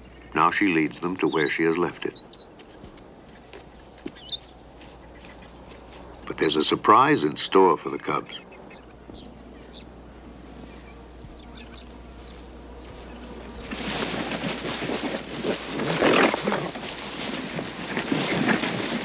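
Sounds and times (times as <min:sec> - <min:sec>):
lions growling and snarling: 0:14.8 - 0:19.0.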